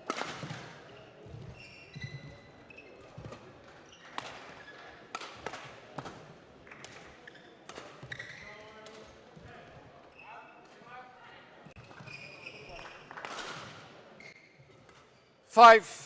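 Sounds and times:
rackets hitting shuttlecock: 0.0s - 0.7s
court shoes squeaking: 0.4s - 10.9s, 11.6s - 15.4s.

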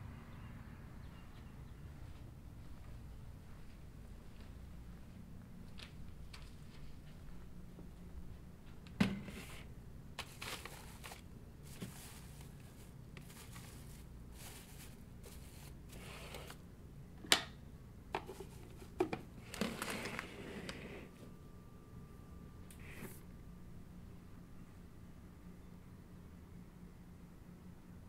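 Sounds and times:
steady low hum: 0.0s - 28.0s
rustling and crinkling: 5.7s - 7.4s, 8.6s - 16.6s, 18.2s - 20.9s
faint steady tone: 21.1s - 28.0s.

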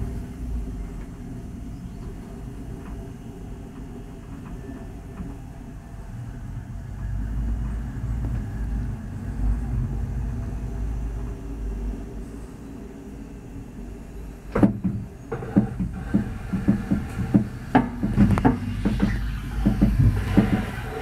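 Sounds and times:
cable car rumbling on rope: 14.6s - 21.0s.

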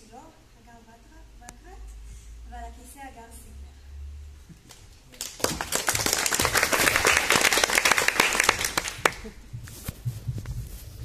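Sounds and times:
audience applauding: 5.2s - 9.4s.

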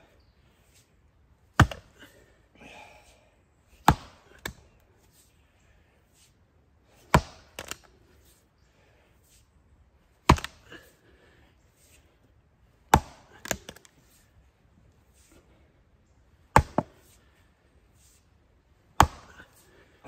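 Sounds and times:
maul striking log: 1.5s - 1.9s, 3.8s - 4.6s, 7.1s - 7.8s, 10.2s - 10.7s, 12.9s - 13.8s, 16.5s - 17.0s, 19.0s - 19.5s.

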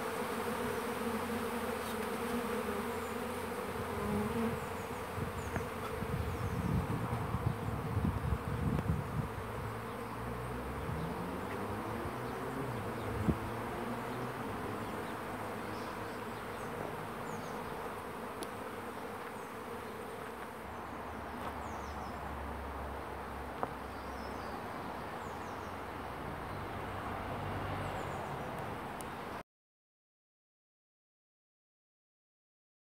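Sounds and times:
bees buzzing: 0.0s - 22.4s.

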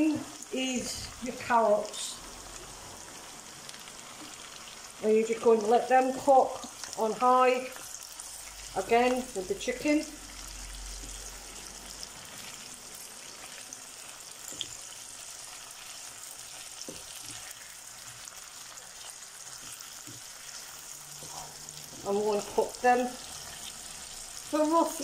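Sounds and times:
food sizzling in a pot: 0.0s - 25.0s
spatula stirring and knocking: 15.8s - 22.6s.

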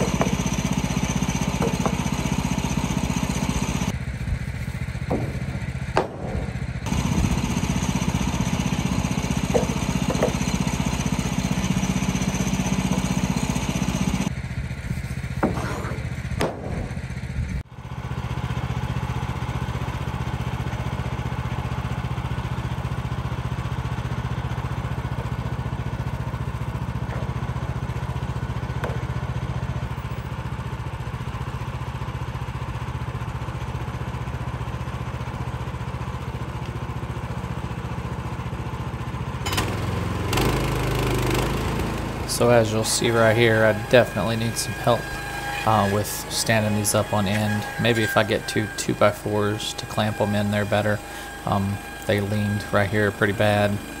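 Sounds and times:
board knocking: 0.0s - 0.4s, 1.6s - 2.1s, 5.0s - 6.6s, 9.5s - 10.5s, 15.4s - 16.9s
sawmill engine running: 0.0s - 54.0s.

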